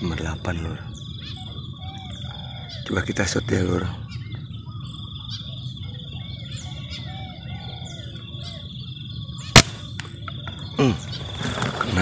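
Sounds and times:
birds calling: 0:00.0 - 0:12.0
air rifle shot: 0:09.5 - 0:10.1.

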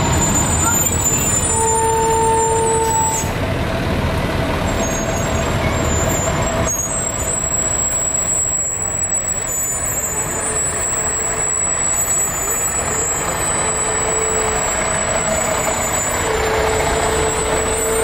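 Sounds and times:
fire trucks driving past: 0:00.0 - 0:18.0.

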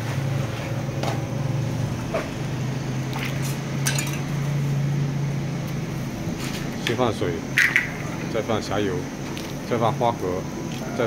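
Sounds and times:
plates and utensils clinking: 0:03.8 - 0:04.3.

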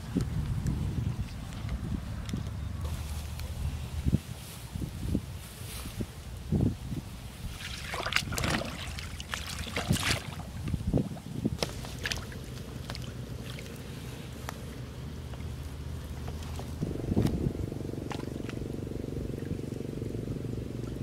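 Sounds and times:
water drips and trickles: 0:07.5 - 0:10.9, 0:18.0 - 0:19.8
fish trap splashing into water: 0:07.6 - 0:10.5, 0:11.6 - 0:13.7.

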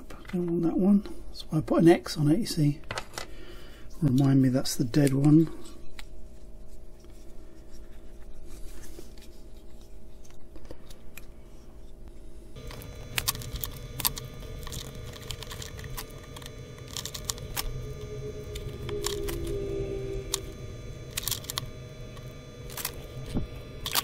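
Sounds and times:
steady electrical hum: 0:11.1 - 0:24.0
plastic parts clicking and scraping: 0:12.6 - 0:24.0.

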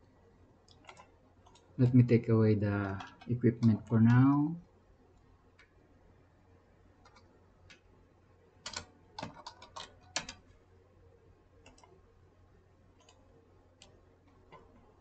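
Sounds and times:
computer keyboard typing: 0:00.7 - 0:01.8, 0:02.8 - 0:04.3, 0:07.0 - 0:07.8, 0:08.6 - 0:10.5, 0:11.6 - 0:12.0, 0:13.0 - 0:13.2.

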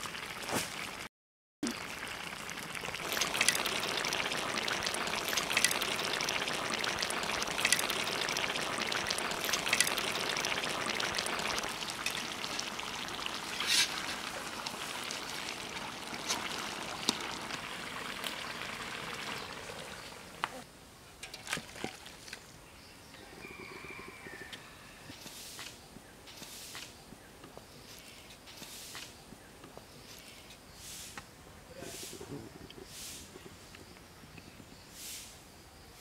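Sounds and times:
curry bubbling: 0:00.0 - 0:20.6.

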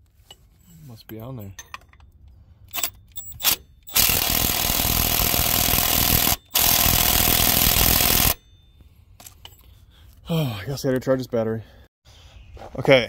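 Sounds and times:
impact wrench hammering: 0:02.7 - 0:08.4.

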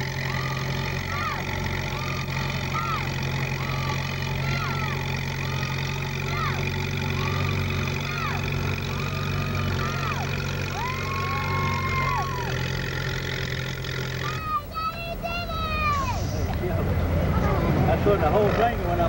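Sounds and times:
high squeals: 0:00.0 - 0:16.5
tractor engine running: 0:00.0 - 0:19.0.

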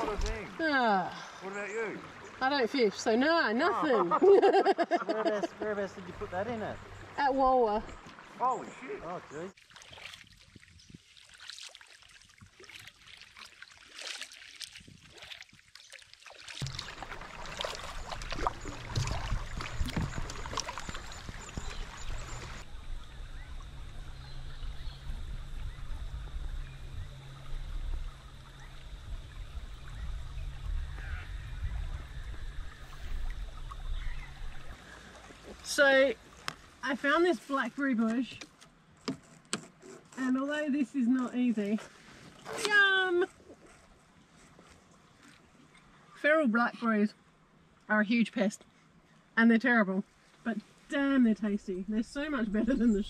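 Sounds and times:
water lapping at canoe hull: 0:00.0 - 0:47.8, 0:50.0 - 0:53.0
water dripping off paddle: 0:09.6 - 0:22.7, 0:32.8 - 0:36.8
low rumble: 0:16.6 - 0:34.8.

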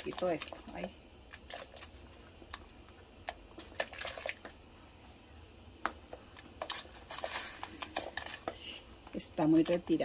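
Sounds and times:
vegetables dropping into water: 0:03.3 - 0:04.6.

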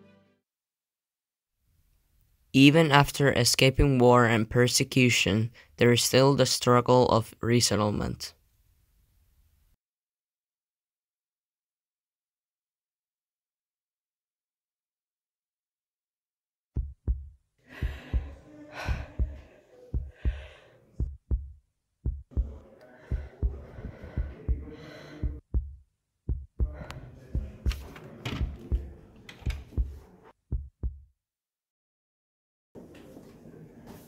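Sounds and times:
dull low thumps: 0:16.8 - 0:27.8, 0:28.4 - 0:28.9, 0:29.6 - 0:31.1.

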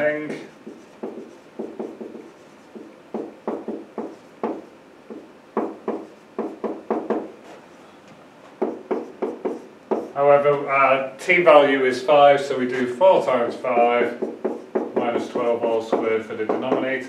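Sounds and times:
marker scratching on whiteboard: 0:00.0 - 0:07.7, 0:08.6 - 0:10.2, 0:12.7 - 0:17.0.

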